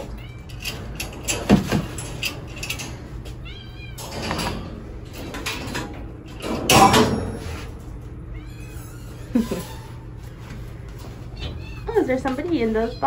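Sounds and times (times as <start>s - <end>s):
cats meowing: 0.0s - 0.7s, 3.2s - 4.2s, 8.0s - 10.2s, 11.2s - 13.0s
metallic clatter of wire cages: 0.0s - 10.3s.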